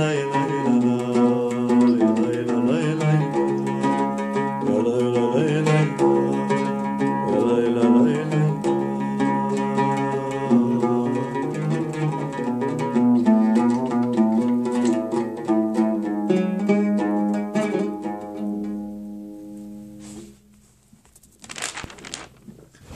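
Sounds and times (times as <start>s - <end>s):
oud plucked notes: 0.0s - 20.7s
short rustling noise: 19.4s - 22.9s.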